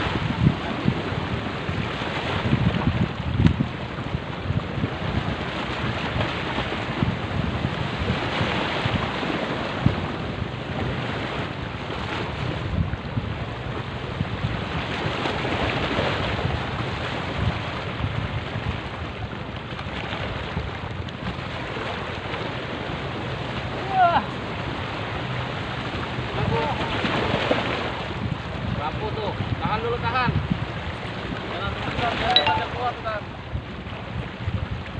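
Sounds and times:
wind rumbling on microphone: 0:00.0 - 0:34.9
waves splashing against rocks: 0:14.4 - 0:28.8, 0:30.5 - 0:34.9.

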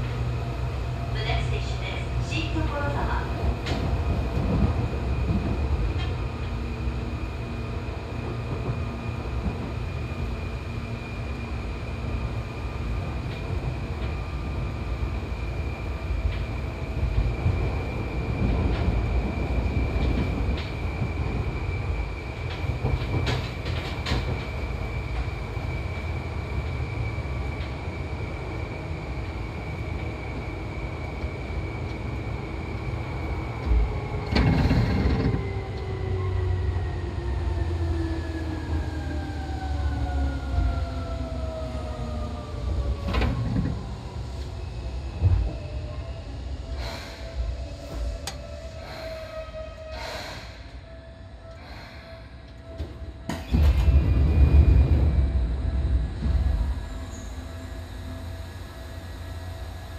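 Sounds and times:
electric train rumble: 0:00.0 - 0:59.9
train motor whine: 0:23.6 - 0:37.0.

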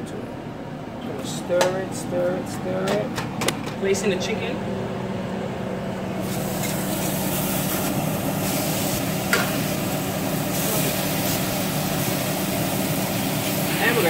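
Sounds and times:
steady low hum: 0:00.0 - 0:14.0
chicken sizzling in a grill pan: 0:06.2 - 0:14.0.

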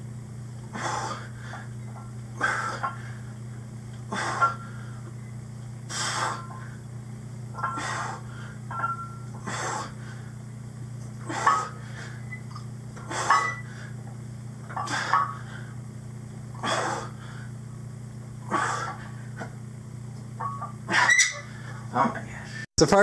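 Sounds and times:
steady low hum: 0:00.0 - 0:23.0
man breathing forcefully and grunting: 0:00.7 - 0:01.7, 0:02.4 - 0:03.3, 0:04.1 - 0:05.0, 0:05.9 - 0:06.8, 0:07.8 - 0:08.6, 0:09.4 - 0:10.4, 0:11.2 - 0:12.2, 0:16.6 - 0:17.6, 0:18.4 - 0:19.4.

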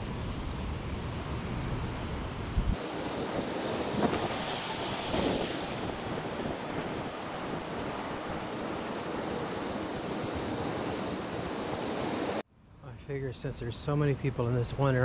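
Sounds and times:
wind on microphone: 0:00.0 - 0:12.4
ocean surf washing: 0:02.8 - 0:12.4.

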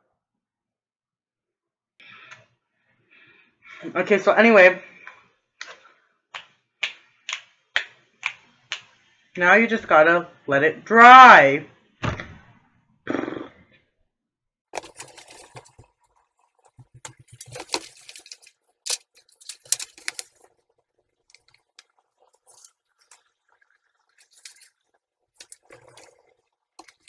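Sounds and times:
rustling: 0:16.7 - 0:20.6.

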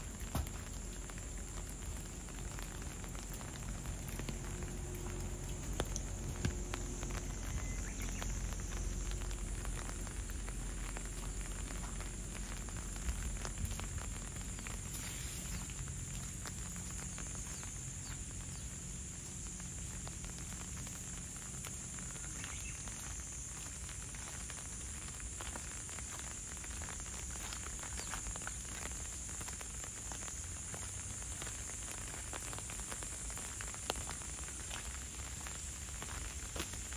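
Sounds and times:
low steady rumble: 0:00.0 - 0:23.5
light rain pattering: 0:00.0 - 0:36.9.

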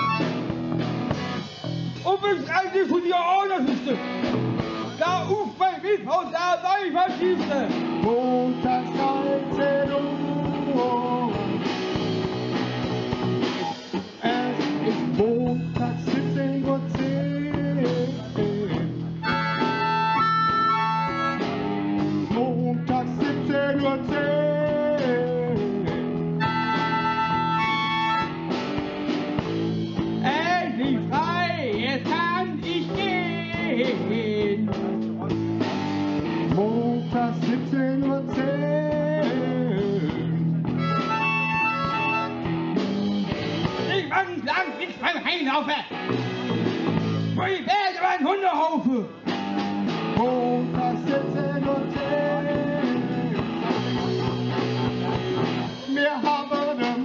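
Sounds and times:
harmonica: 0:00.0 - 0:00.6, 0:18.7 - 0:21.8, 0:25.8 - 0:28.7, 0:39.9 - 0:43.9
blues-rock band playing: 0:00.0 - 0:57.0.

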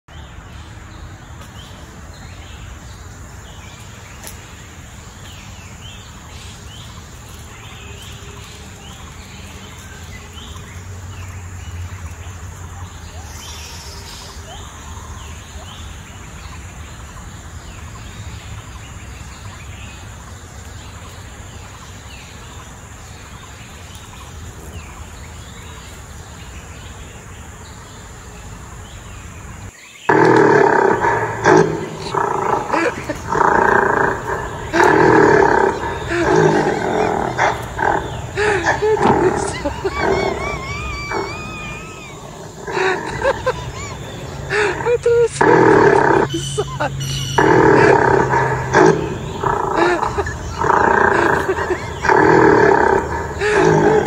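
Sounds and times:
small birds chirping: 0:00.0 - 0:54.0
high insect buzz: 0:29.8 - 0:54.0.

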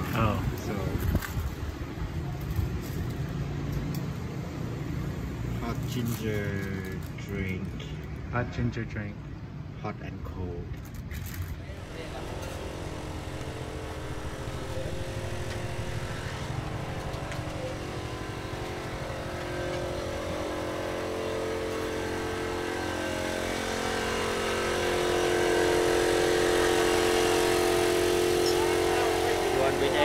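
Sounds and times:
street noise: 0:00.0 - 0:30.0
small engine humming: 0:11.6 - 0:30.0.

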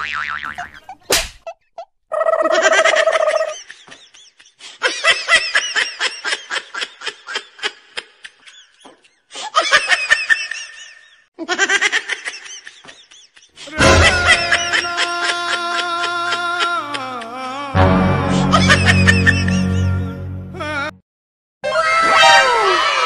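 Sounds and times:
high-pitched cackling laughter: 0:00.5 - 0:17.6, 0:18.3 - 0:20.1.

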